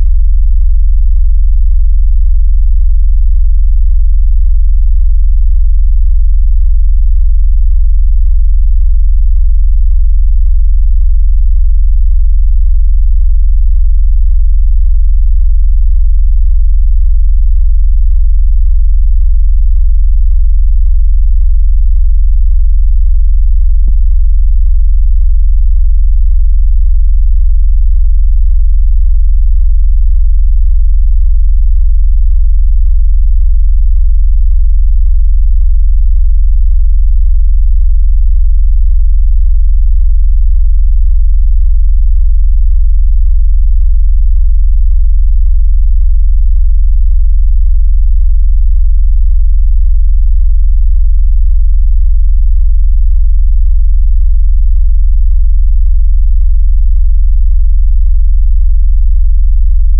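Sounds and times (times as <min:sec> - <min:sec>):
deep pulsing synthetic bass tone: 0:00.0 - 0:40.2.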